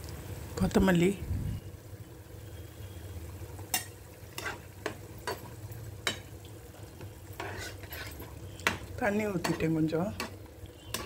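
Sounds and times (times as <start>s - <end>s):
gravy sizzling in a frying pan: 0.0s - 11.0s
spatula scraping a pan: 3.7s - 6.3s, 7.0s - 11.0s.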